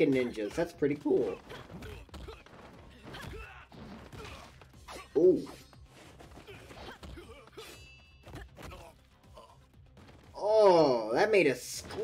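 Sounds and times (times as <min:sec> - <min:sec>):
fight scene hits and knocks: 0:01.1 - 0:05.1.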